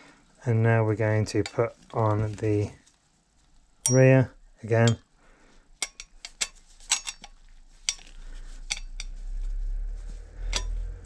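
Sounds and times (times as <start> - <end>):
low rumble: 8.4 - 11.0.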